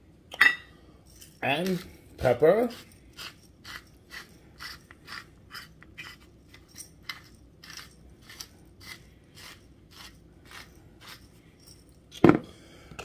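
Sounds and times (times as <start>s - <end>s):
pepper grinder crunching: 1.2s - 2.0s, 2.6s - 12.3s.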